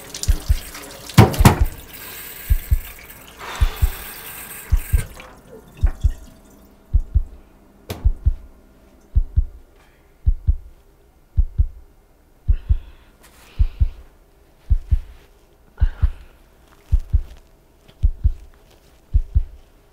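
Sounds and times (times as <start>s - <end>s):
heartbeat thumps: 0.3s - 1.8s, 2.5s - 3.0s, 3.6s - 4.1s, 4.7s - 5.2s, 5.8s - 6.3s, 6.9s - 8.5s, 9.1s - 11.9s, 12.5s - 13.0s, 13.6s - 17.4s, 18.0s - 19.7s.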